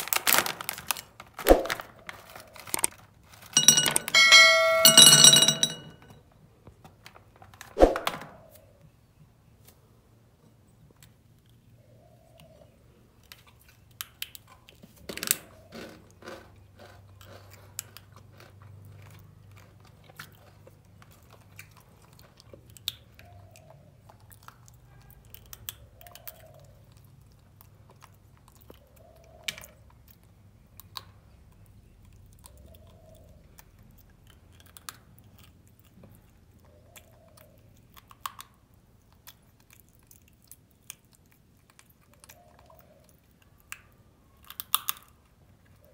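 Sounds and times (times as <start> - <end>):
monkey chewing and crunching candy: 13.1 - 45.9.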